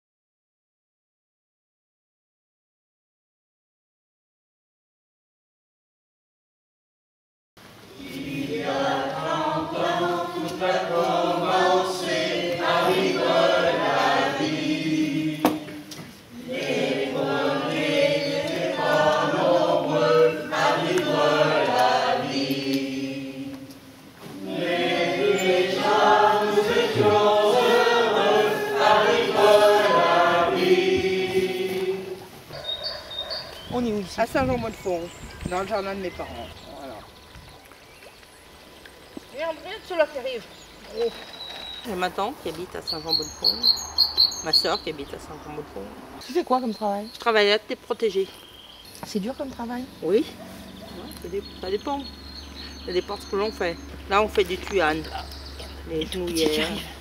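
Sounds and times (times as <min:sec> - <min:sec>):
choir singing: 0:07.9 - 0:32.8.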